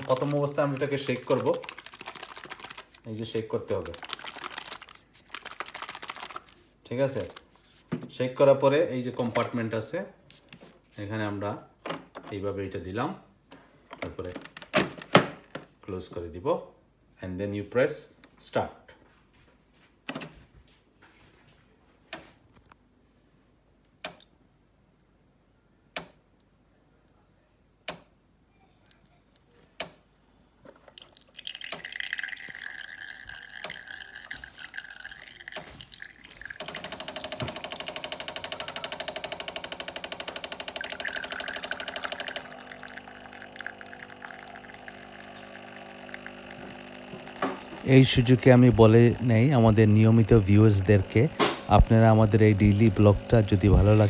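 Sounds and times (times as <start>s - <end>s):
milk pouring into a glass: 0.0s - 7.4s, 30.4s - 39.0s, 40.1s - 54.0s
pump hissing and buzzing: 36.6s - 54.0s.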